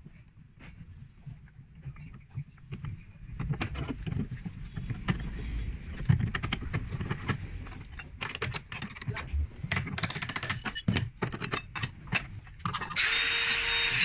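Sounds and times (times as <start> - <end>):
metal parts clinking and scraping: 7.8 - 13.1.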